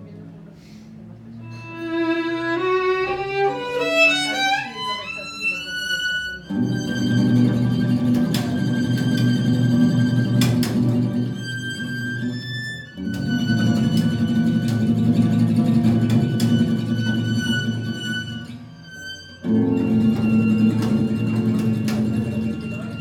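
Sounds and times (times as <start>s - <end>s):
double bass: 1.2s - 4.4s, 5.1s - 23.0s
violin melody: 1.4s - 23.0s
acoustic guitar: 6.5s - 18.8s, 19.4s - 23.0s.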